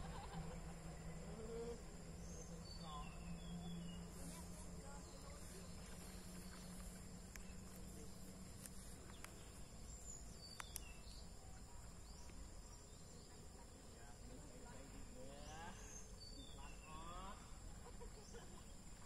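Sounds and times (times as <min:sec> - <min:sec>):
insects droning: 0:00.0 - 0:19.0
faint clicks: 0:08.6 - 0:09.5, 0:10.4 - 0:11.0.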